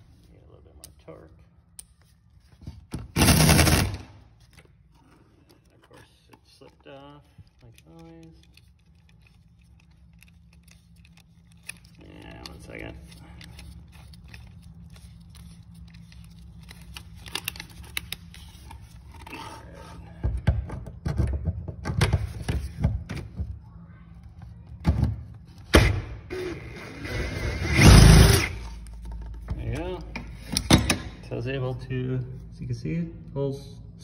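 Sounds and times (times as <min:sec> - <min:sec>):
cordless drill whirring: 0:26.3 - 0:28.6.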